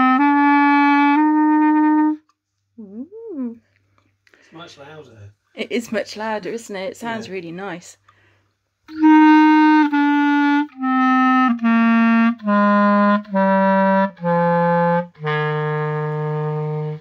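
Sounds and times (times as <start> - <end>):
clarinet playing descending scale: 0.0 - 2.2, 8.9 - 17.0.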